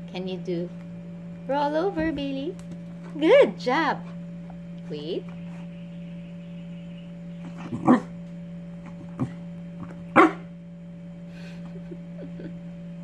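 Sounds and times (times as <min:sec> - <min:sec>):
steady low hum: 0:00.0 - 0:13.0
dog barking: 0:07.6 - 0:08.1, 0:10.1 - 0:10.5.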